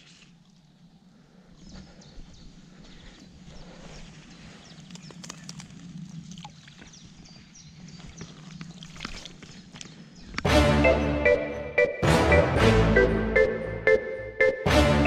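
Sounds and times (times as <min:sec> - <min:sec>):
water splashes and drips: 0:04.8 - 0:06.9, 0:08.0 - 0:09.9.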